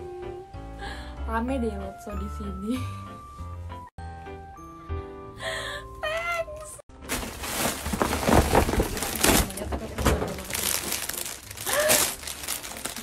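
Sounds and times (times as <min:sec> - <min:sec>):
plastic wrapping crinkling: 0:07.0 - 0:13.0.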